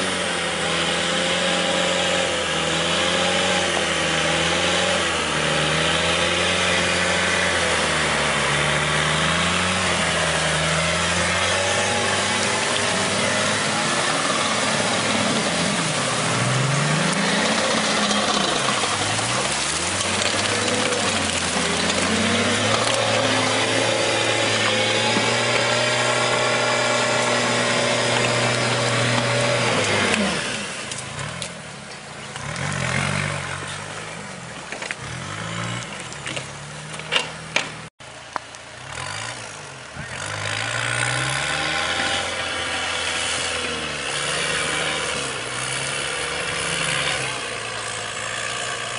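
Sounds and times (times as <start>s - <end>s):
tracked vehicle engine revving: 0.0s - 48.9s.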